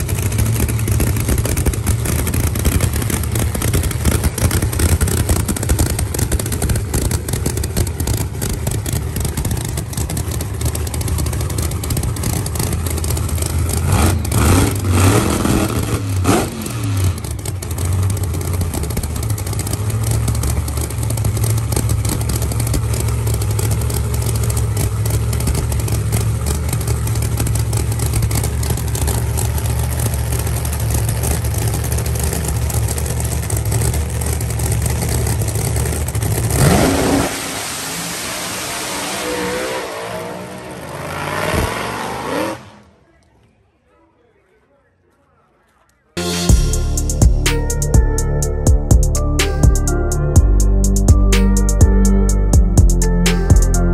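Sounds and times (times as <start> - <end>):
car engine idling and revving: 0.0 - 43.0, 46.2 - 53.9.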